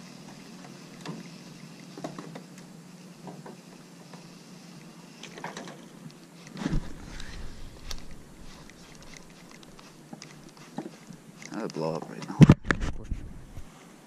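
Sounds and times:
steady low hum: 0:00.0 - 0:14.0
loud thump: 0:06.6 - 0:07.7.

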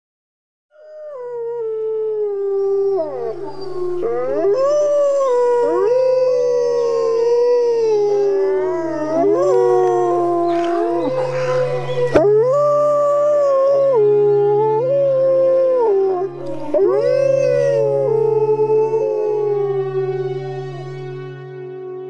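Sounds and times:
wolves howling in chorus: 0:00.8 - 0:21.4.

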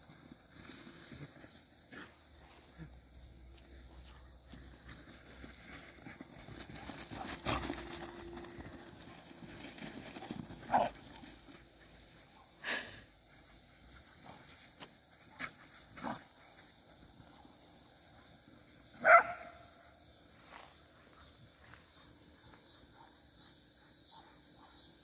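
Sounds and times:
dogs running through grass: 0:00.0 - 0:12.8.

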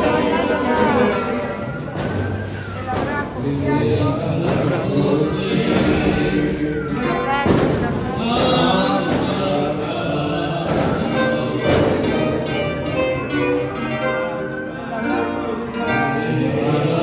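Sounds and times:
sharp thumps: 0:00.0 - 0:03.5, 0:04.2 - 0:14.4
plucked string instruments: 0:00.0 - 0:17.0
voices singing: 0:00.0 - 0:17.0.

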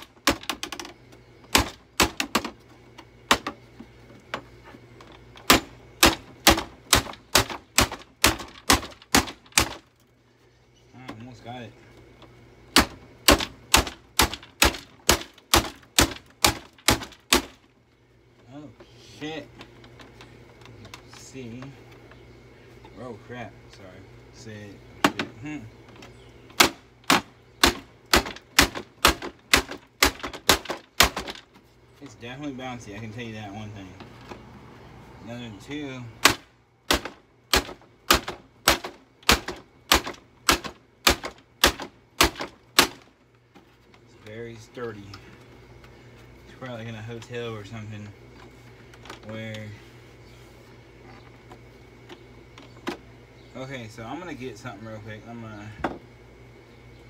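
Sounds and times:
hammer striking wood: 0:01.5 - 0:02.6, 0:05.4 - 0:09.8, 0:12.7 - 0:17.6, 0:26.5 - 0:31.4, 0:36.2 - 0:43.0.

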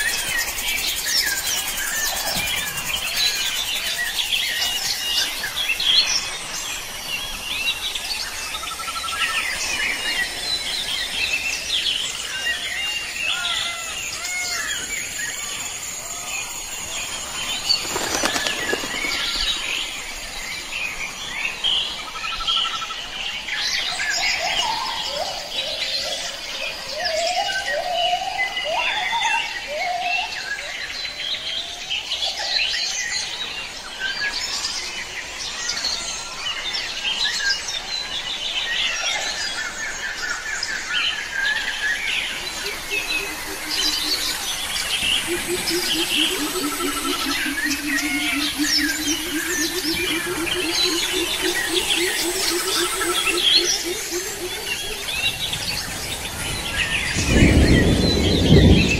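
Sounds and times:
birds chirping and whistling: 0:40.0 - 0:58.9.

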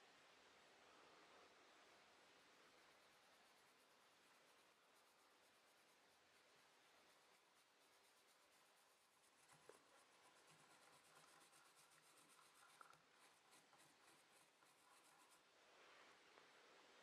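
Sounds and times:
pencil scribbling on paper: 0:03.2 - 0:15.4.

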